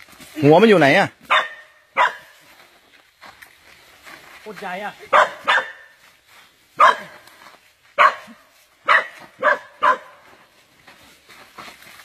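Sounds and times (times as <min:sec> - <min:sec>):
dog barking: 0:01.3 - 0:02.4, 0:05.1 - 0:06.0, 0:06.8 - 0:07.2, 0:08.0 - 0:10.3.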